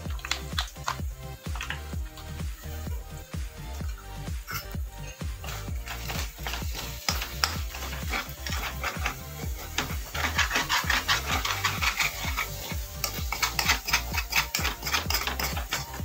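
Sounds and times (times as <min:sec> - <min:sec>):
spatula scraping a metal wok: 0:04.5 - 0:16.0.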